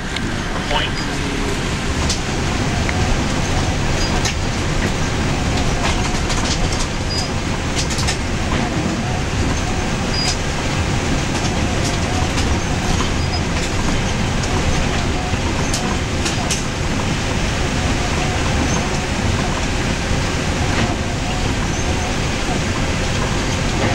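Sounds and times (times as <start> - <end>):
engine and tyre rumble: 0.0 - 23.9.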